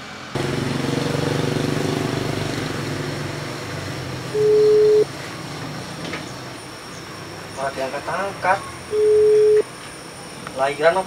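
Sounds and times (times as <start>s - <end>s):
motor engine hum: 0.4s - 6.6s
phone ringback tone: 4.4s - 5.1s, 8.9s - 9.6s.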